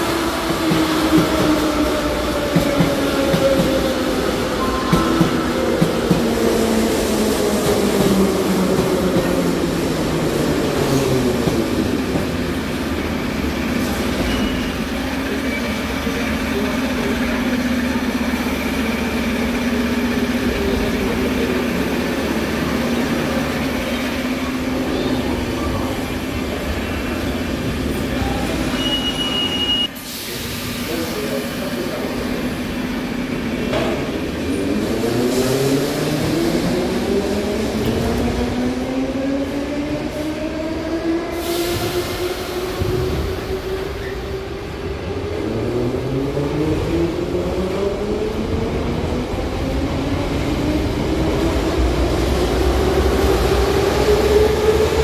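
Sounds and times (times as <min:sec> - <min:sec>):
steady hum of standing trains: 0:00.0 - 0:55.0.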